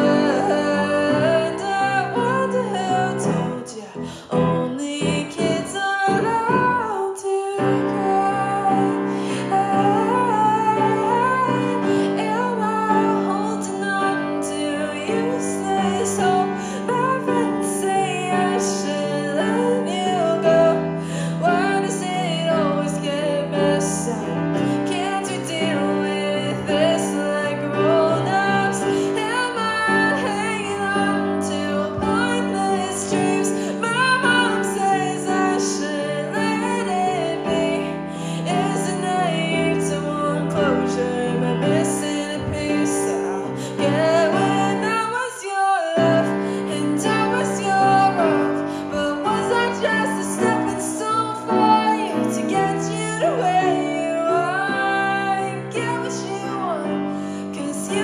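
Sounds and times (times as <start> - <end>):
piano chords: 0.0 - 58.0
woman singing a ballad: 0.0 - 58.0.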